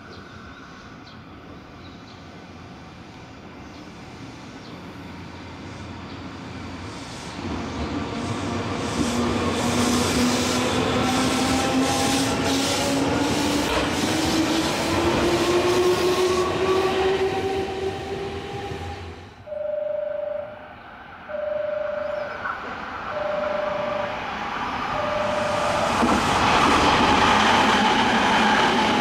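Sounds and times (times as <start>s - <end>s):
rail rolling noise: 0.0s - 29.0s
train traction motor whine: 23.1s - 27.2s.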